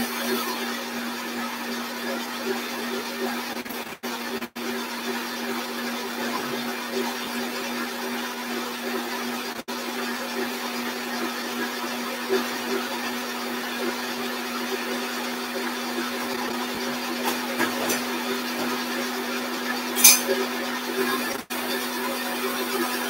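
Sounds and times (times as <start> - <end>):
stand mixer motor whirring: 0.0 - 23.0
sharp clink: 20.0 - 20.3.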